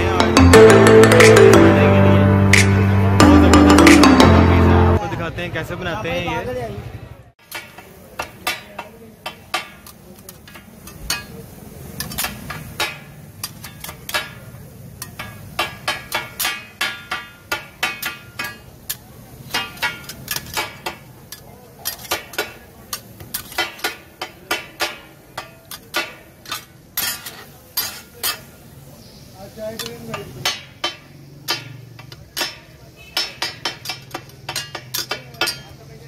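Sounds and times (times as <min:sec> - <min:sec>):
metal spatulas clanging on griddle: 0:07.4 - 0:28.7, 0:29.6 - 0:36.0.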